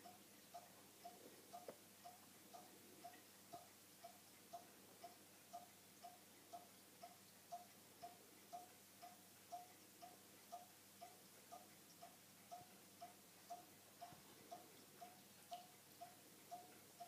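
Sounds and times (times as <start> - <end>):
faint regular ticking: 0.0 - 17.0.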